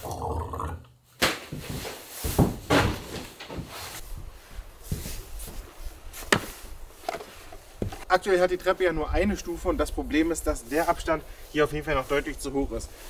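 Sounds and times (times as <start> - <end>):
footsteps on wooden boards: 1.5 - 4.0, 4.8 - 8.1
rustling: 1.5 - 13.0
knocks and thumps on wood: 6.3 - 6.5.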